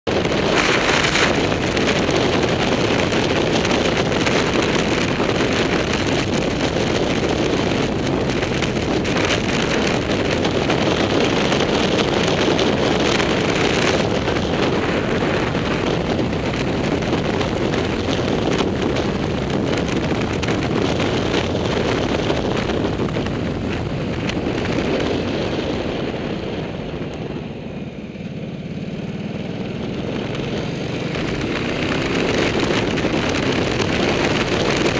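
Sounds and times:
wind rush over microphone: 0:00.0 - 0:34.9
motorcycle engine running: 0:00.1 - 0:34.9.

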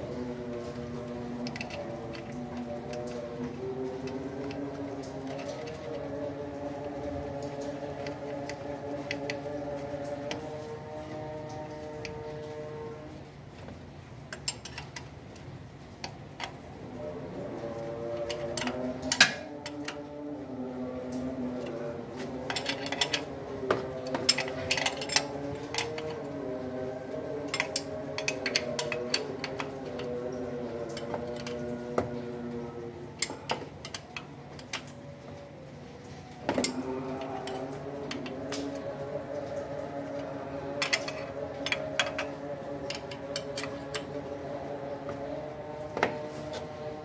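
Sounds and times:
metal tools clicking and clinking: 0:00.7 - 0:06.1, 0:14.3 - 0:15.1, 0:18.2 - 0:20.0, 0:22.3 - 0:26.4, 0:27.4 - 0:30.2, 0:33.2 - 0:35.1, 0:36.4 - 0:39.1, 0:40.1 - 0:44.2
hand tool clicking on metal bolts: 0:01.4 - 0:03.0.

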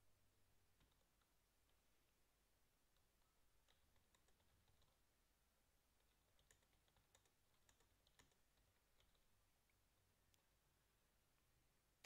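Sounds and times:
keyboard typing: 0:00.7 - 0:02.2, 0:02.8 - 0:05.1, 0:05.9 - 0:10.6.

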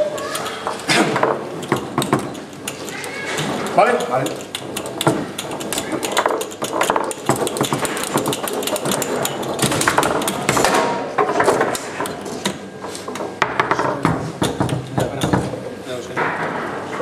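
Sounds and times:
foosball rods knocking and rattling: 0:00.0 - 0:17.0.

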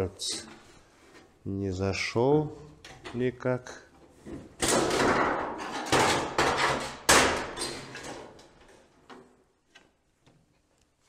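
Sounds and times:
sheet metal bangs and rattles: 0:04.6 - 0:08.4.

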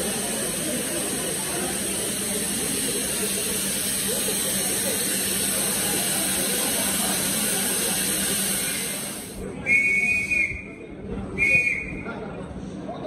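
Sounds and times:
steady hiss: 0:00.0 - 0:09.4
train coaches rolling past: 0:00.0 - 0:13.0.

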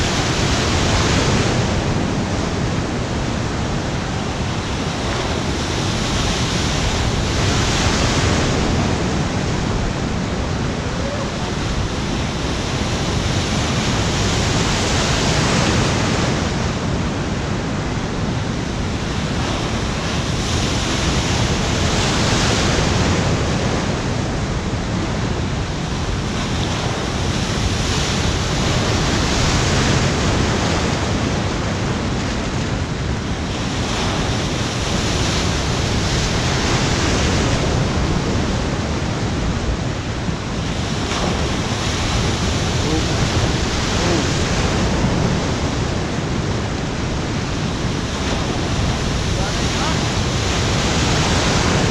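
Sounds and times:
waves breaking against wall: 0:40.4 - 0:46.0.

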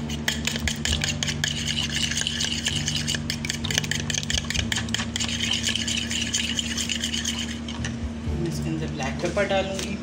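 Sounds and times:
eggs beaten in plastic bowl: 0:00.0 - 0:07.9.

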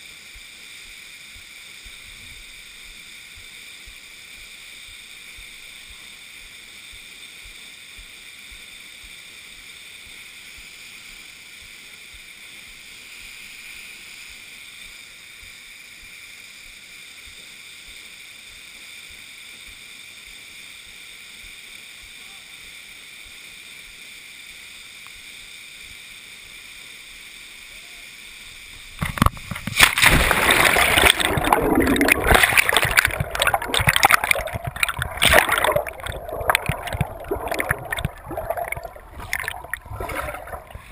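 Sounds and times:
small waterfall hissing: 0:00.0 - 0:40.9
underwater churning rush: 0:29.2 - 0:40.9.

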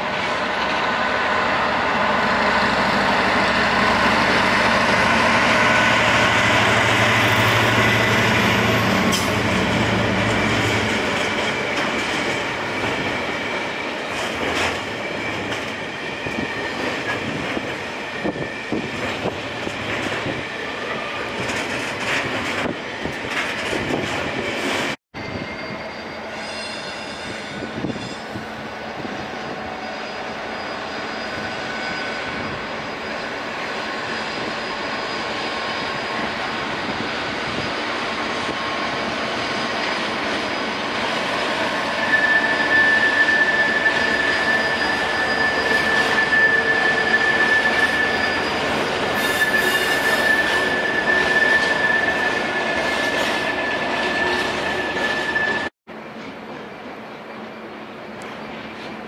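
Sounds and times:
train wheels clicking over rail joints: 0:21.3 - 0:25.0.

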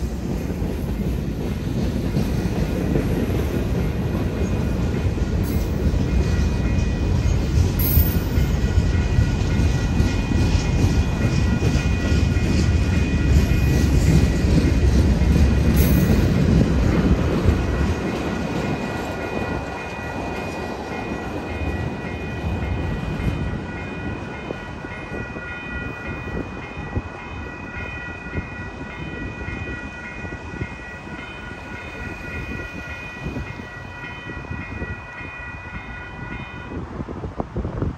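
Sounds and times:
train wheels clacking over rails: 0:00.0 - 0:36.0
crossing warning bell ringing: 0:02.4 - 0:36.9.

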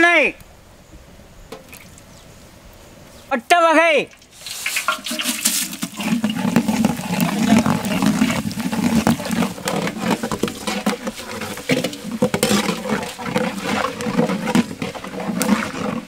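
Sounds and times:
spices sizzling in hot oil: 0:04.1 - 0:12.4.

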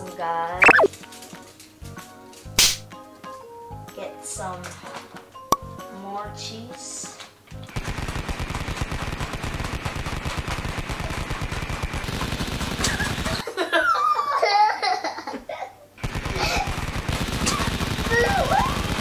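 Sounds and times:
child giggling: 0:13.4 - 0:15.8.

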